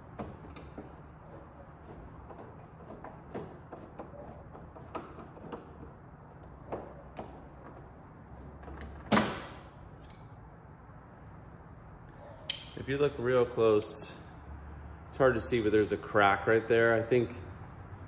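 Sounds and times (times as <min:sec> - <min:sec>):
sharp metallic clank: 0:12.5 - 0:12.9.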